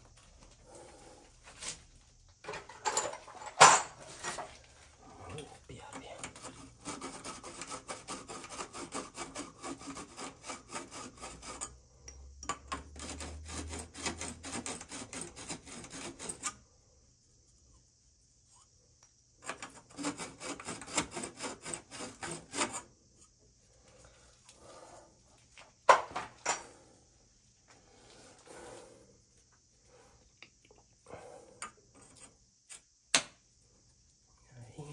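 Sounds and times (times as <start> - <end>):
scouring copper pipe by hand: 6.2 - 16.8, 19.4 - 25.6.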